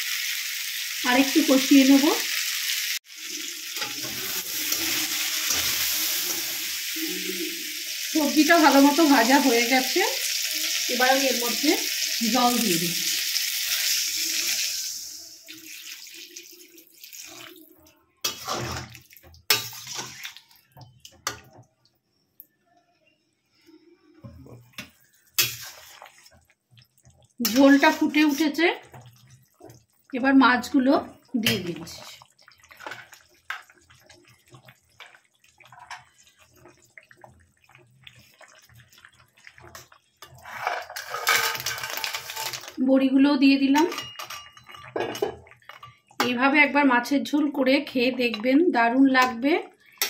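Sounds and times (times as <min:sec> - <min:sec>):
water rushing into hot wok: 0:00.0 - 0:17.6
broth boiling in a pot: 0:00.7 - 0:17.8, 0:24.0 - 0:48.3
metal spatula scraping pan: 0:03.6 - 0:07.3, 0:18.2 - 0:20.5, 0:24.8 - 0:26.3, 0:39.7 - 0:42.7.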